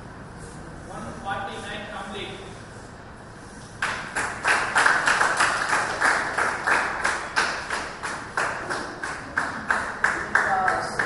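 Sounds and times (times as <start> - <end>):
hand clapping: 3.8 - 11.0.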